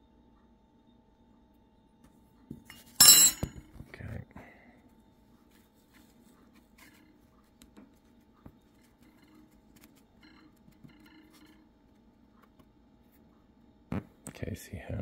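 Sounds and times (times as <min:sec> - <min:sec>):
soft scratches on paper towel: 0:05.3 - 0:08.4.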